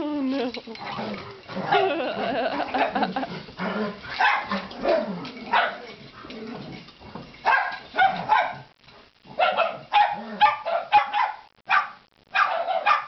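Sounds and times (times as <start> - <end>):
dog barking: 4.2 - 5.9, 7.5 - 8.7, 9.3 - 13.0.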